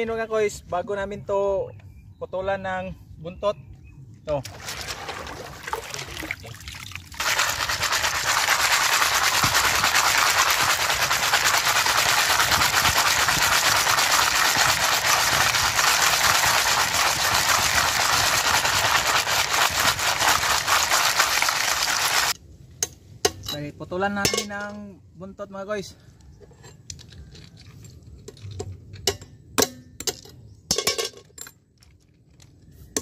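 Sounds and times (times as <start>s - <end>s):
shells clattering in water: 7.1s - 22.4s, 30.1s - 32.0s.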